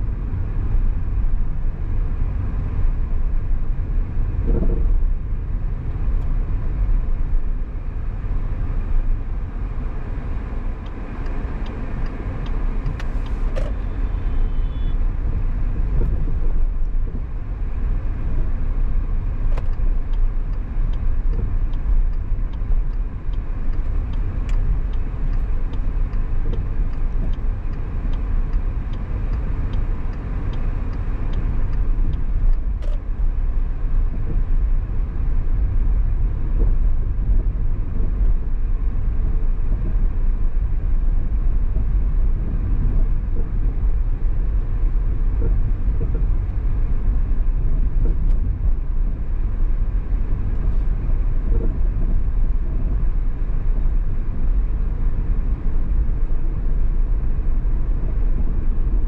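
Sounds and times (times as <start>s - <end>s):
car road and engine rumble: 0.0s - 59.0s
light ticking: 19.5s - 33.0s.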